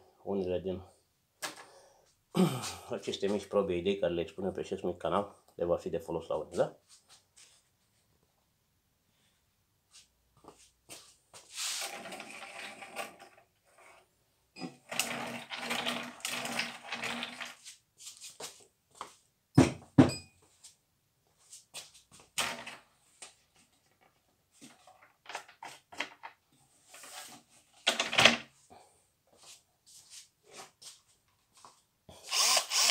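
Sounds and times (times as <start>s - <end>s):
table rolling on tile floor: 11.7s - 17.7s, 22.4s - 22.9s
wooden knocks and clatters: 23.6s - 26.4s.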